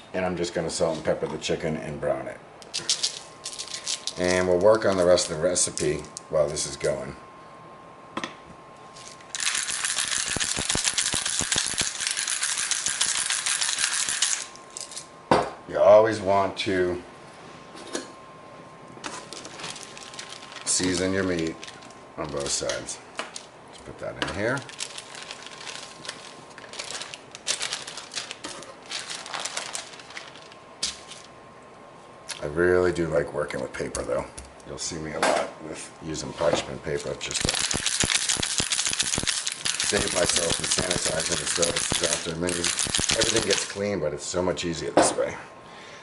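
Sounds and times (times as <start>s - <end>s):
pepper mill grinding: 2.7s - 6.2s, 9.0s - 15.0s, 19.1s - 23.5s, 24.5s - 30.6s, 36.9s - 43.8s
paper crinkling: 2.8s - 6.1s, 19.0s - 23.5s, 24.4s - 31.3s, 36.9s - 43.8s.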